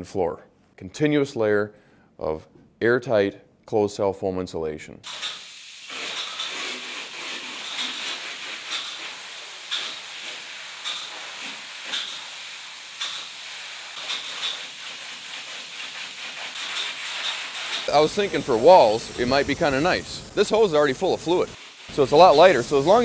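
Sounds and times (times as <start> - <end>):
spray foam gun hissing: 5.1 - 23.0.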